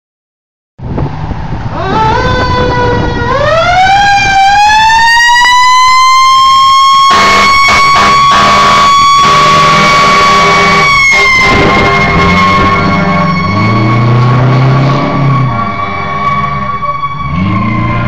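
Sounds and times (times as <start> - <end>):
fire engine running: 0.8 - 18.0
fire engine siren wailing: 1.6 - 18.0
loud air horn blasts: 7.0 - 18.0.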